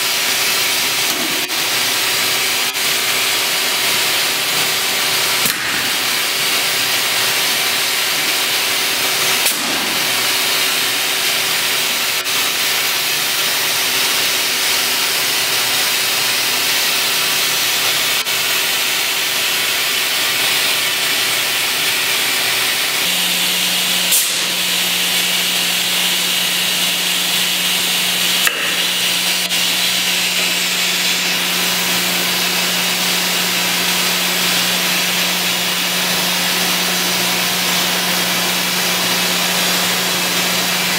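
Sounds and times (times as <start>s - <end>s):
edgebander machine hiss and hum: 0.0s - 40.9s.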